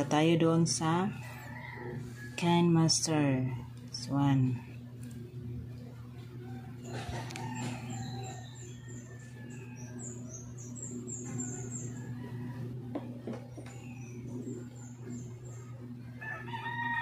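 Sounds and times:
steady low hum: 0.0s - 17.0s
birds chirping: 6.4s - 16.8s.

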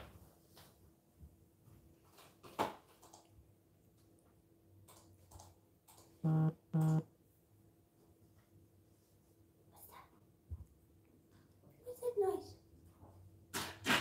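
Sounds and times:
low electronic buzzes: 6.2s - 7.0s.

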